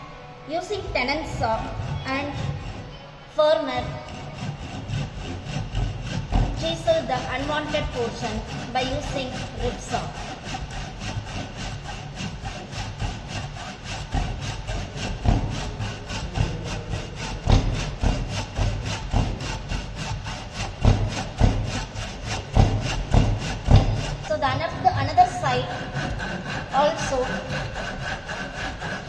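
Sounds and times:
hand saw cutting wood: 0:00.7 - 0:29.0
heavy thuds: 0:04.2 - 0:27.2.

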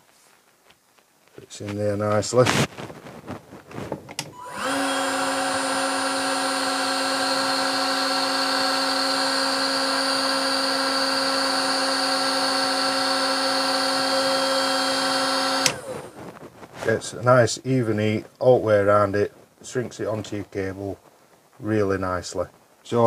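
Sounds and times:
heat gun fan whine: 0:04.1 - 0:16.3.

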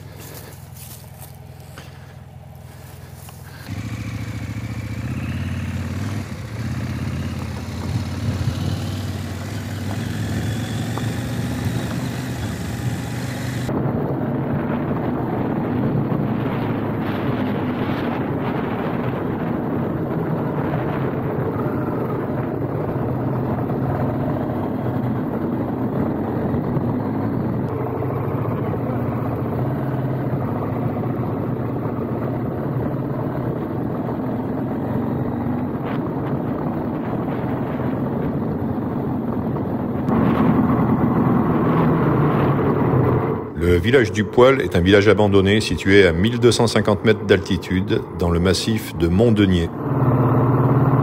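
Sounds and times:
motorcycle engine running: 0:00.0 - 0:43.5
wind on microphone: 0:06.0 - 0:43.6.

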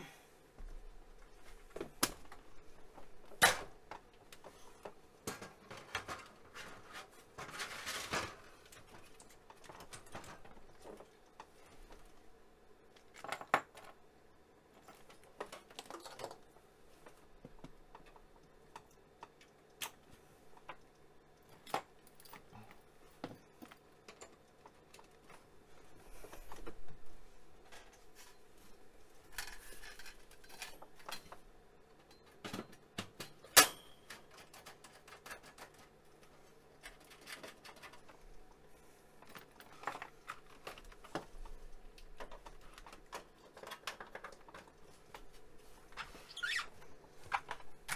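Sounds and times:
faint steady hum: 0:00.0 - 0:47.9
clicks and rustling of parts: 0:00.6 - 0:14.1, 0:14.7 - 0:47.9.

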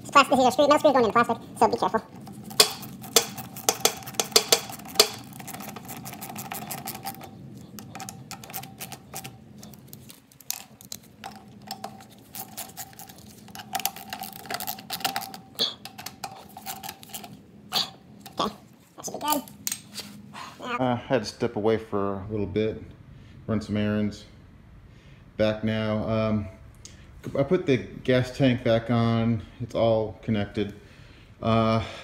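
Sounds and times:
faint steady hum: 0:00.0 - 0:32.0
socket ratchet clicking: 0:02.2 - 0:17.4.

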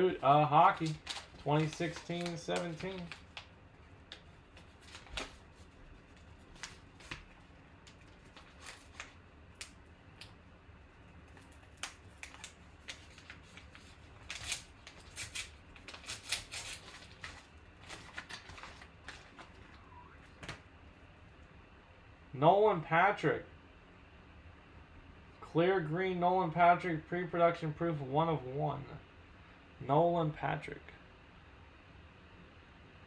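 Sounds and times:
paper wrapper crinkling and tearing: 0:00.1 - 0:03.5, 0:04.1 - 0:10.3, 0:11.2 - 0:20.6.

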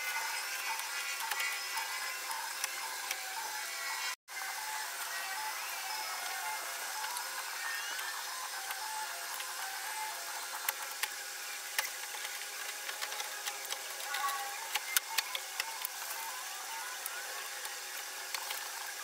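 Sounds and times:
steady background hum: 0:00.0 - 0:19.0
plastic and metal parts clicking: 0:10.6 - 0:19.0.

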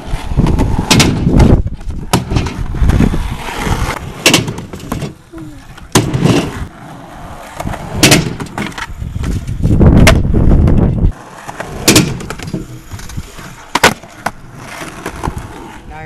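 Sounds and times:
skateboard wheels rolling on concrete: 0:00.0 - 0:16.0
skateboard clacking on ground: 0:07.4 - 0:15.5.

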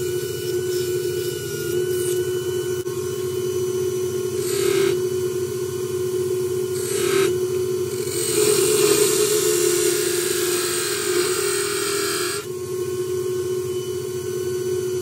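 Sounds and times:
wood lathe humming: 0:04.2 - 0:05.6, 0:06.2 - 0:12.5.

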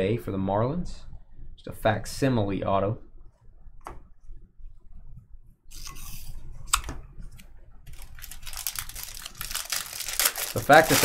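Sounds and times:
foil wrappers crinkling: 0:07.9 - 0:11.0
trading cards rustling: 0:07.9 - 0:11.0.

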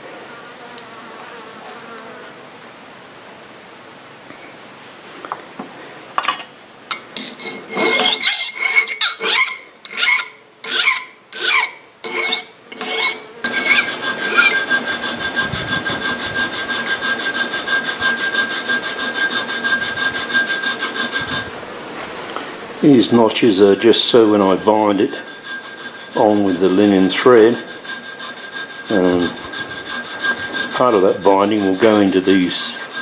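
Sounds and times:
hand file strokes on metal: 0:07.2 - 0:21.6, 0:23.0 - 0:33.0.

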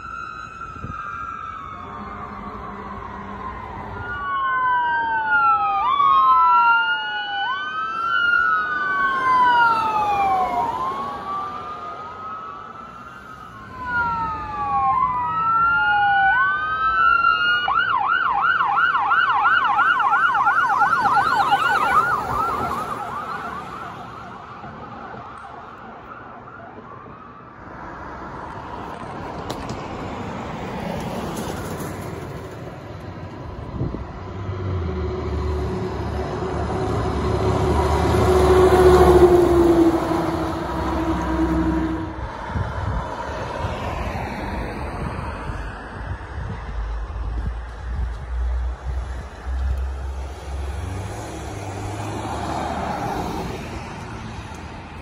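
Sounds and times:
siren fast yelp: 0:00.0 - 0:24.4
ambulance siren wailing: 0:00.0 - 0:27.7, 0:34.6 - 0:55.0
passing traffic: 0:00.0 - 0:55.0.

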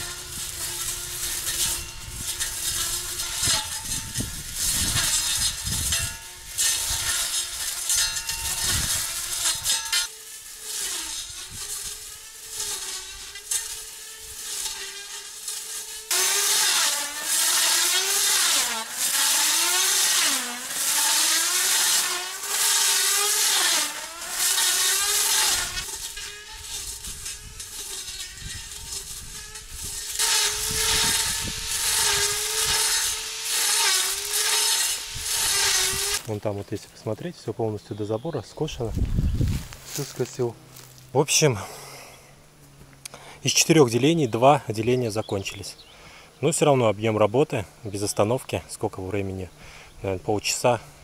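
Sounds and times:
electric grass trimmer whining: 0:00.0 - 0:36.4
tall grass being cut: 0:00.0 - 0:36.7, 0:38.7 - 0:51.0.

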